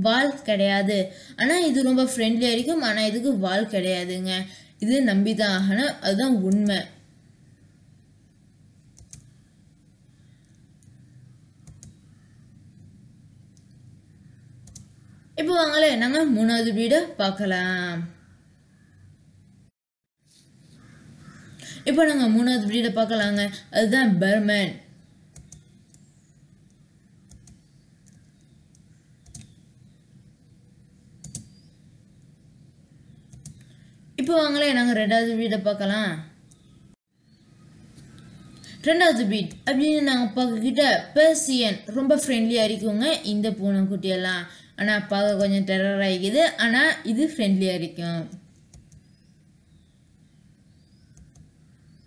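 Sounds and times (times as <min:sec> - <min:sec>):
low room hiss: 0:00.0 - 0:19.7, 0:20.4 - 0:52.0
low steady hum: 0:00.0 - 0:19.7, 0:20.3 - 0:52.0
soft clicks: 0:08.8 - 0:09.4, 0:11.6 - 0:12.0, 0:13.5 - 0:13.8, 0:14.6 - 0:15.0, 0:25.4 - 0:29.6, 0:33.3 - 0:33.8, 0:36.5 - 0:36.7, 0:51.1 - 0:51.5.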